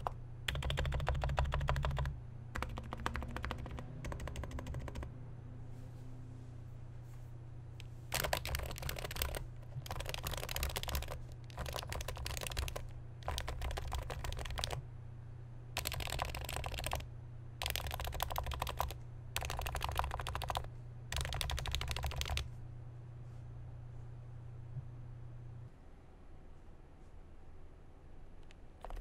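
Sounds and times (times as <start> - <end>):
fast typing on a keyboard: 0.0 - 5.1, 8.1 - 14.8, 15.8 - 17.0, 17.6 - 22.5, 28.4 - 29.0.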